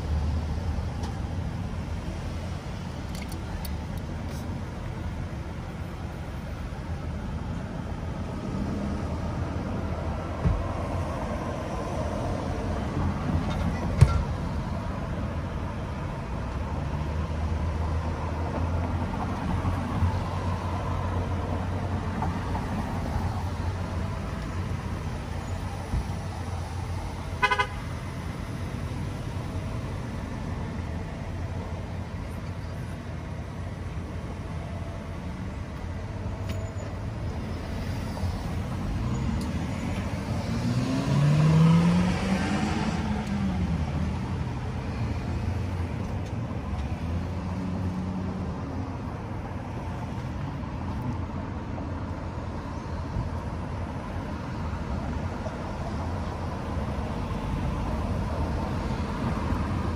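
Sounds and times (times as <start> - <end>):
cars passing: 0.0 - 59.9
car horn toot: 27.4 - 27.9
car pulling away: 38.8 - 44.6.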